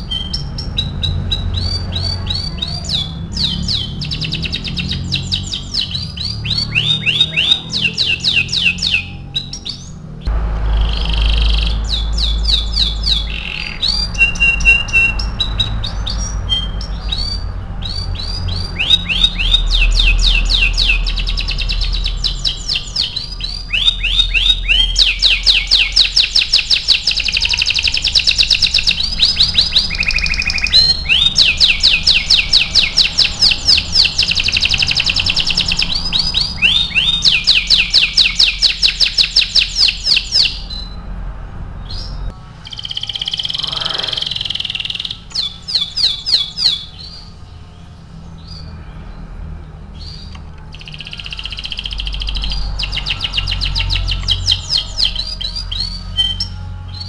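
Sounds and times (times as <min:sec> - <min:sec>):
canary singing trills: 0:00.0 - 0:57.0.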